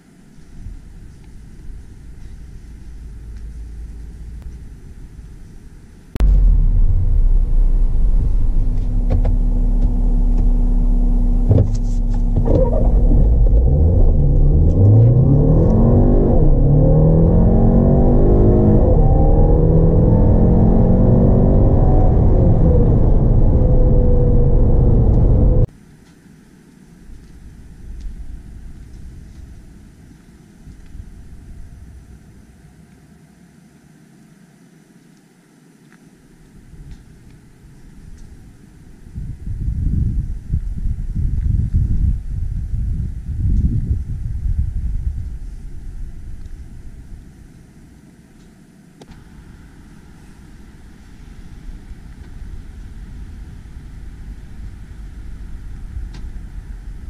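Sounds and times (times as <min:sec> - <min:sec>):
car engine accelerating: 0:02.0 - 0:05.3, 0:06.1 - 0:25.7.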